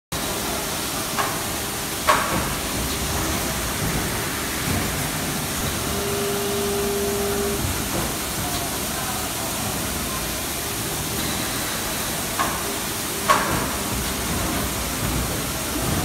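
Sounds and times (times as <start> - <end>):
factory machinery hissing: 0.2 - 16.0
steady low tone: 4.2 - 7.9.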